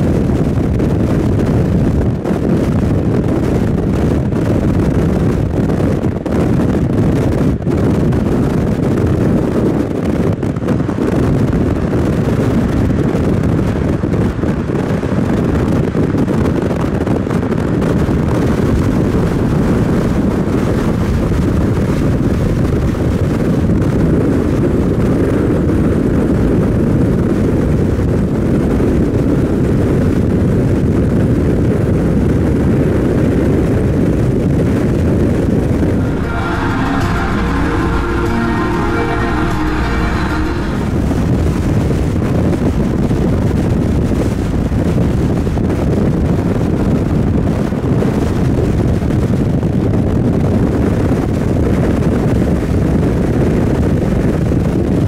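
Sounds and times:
car road noise: 0.0s - 28.3s, 34.0s - 49.3s
wind buffeting microphone: 0.0s - 55.0s.

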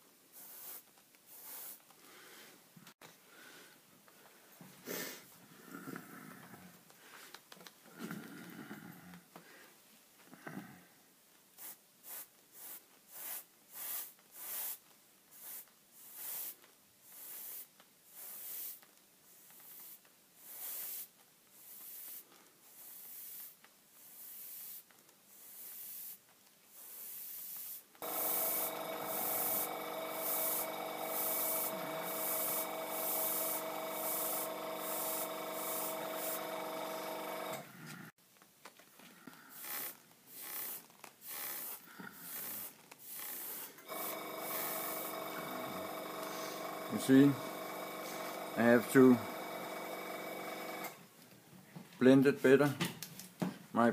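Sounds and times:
airbrush spraying bursts: 0.3s - 1.9s, 11.6s - 37.6s, 39.5s - 51.0s
air compressor humming: 28.0s - 37.8s, 39.6s - 51.0s.

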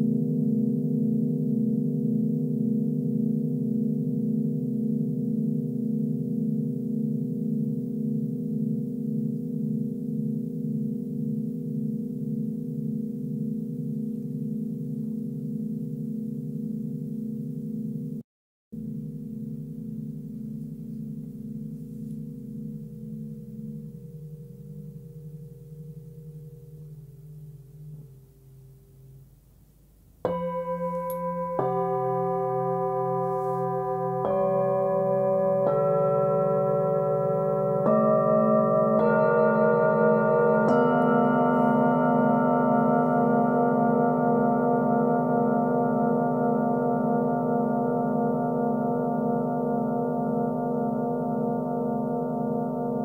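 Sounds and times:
singing bowls ringing: 19.3s - 28.2s, 30.3s - 53.0s.

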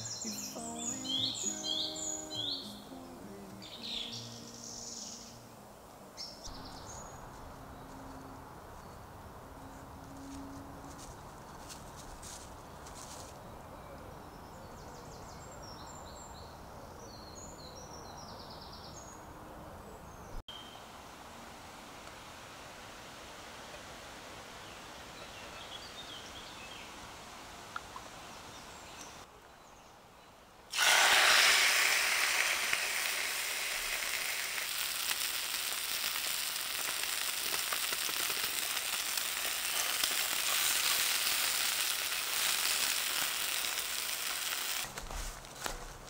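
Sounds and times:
steak sizzling in a hot pan: 30.8s - 44.9s.

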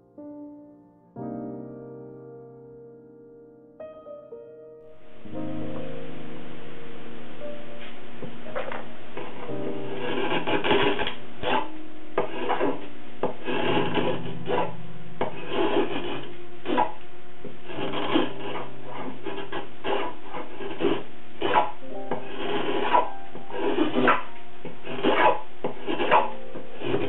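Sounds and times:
gouge scraping wood: 9.2s - 27.0s.

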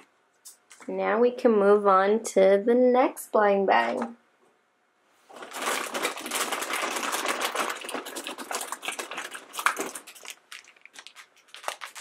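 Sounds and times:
plastic packets crinkling: 5.3s - 12.0s.

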